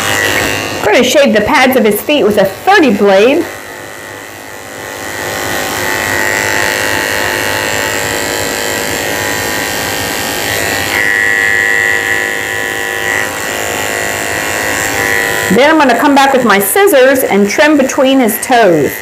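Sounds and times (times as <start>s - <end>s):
electric clippers buzzing: 0.0s - 19.0s.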